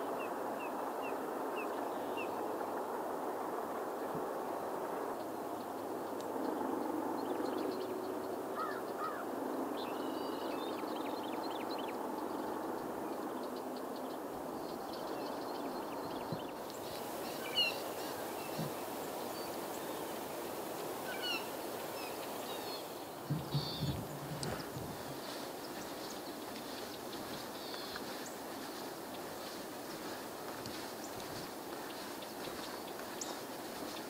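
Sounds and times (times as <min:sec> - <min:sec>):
steady background hiss: 0:00.0 - 0:34.0
bird chirps and calls: 0:16.8 - 0:20.0, 0:21.0 - 0:24.6.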